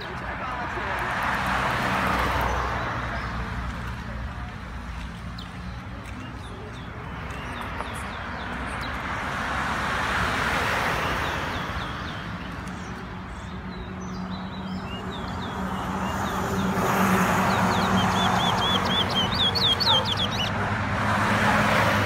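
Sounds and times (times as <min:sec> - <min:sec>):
car passing: 0:07.0 - 0:22.0
small bird chirping: 0:17.6 - 0:20.5.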